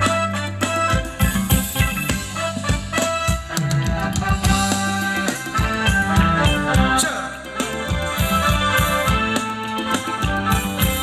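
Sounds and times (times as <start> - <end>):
live band dance music: 0.0 - 11.0
steady drum beat: 0.0 - 11.0.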